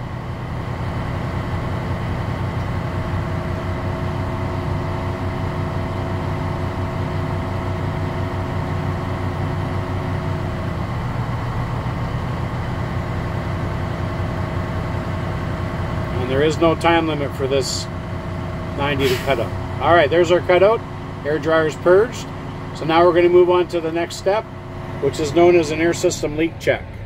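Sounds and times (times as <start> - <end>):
diesel engine fast idle: 0.0 - 27.0
air compressor running: 12.6 - 27.0.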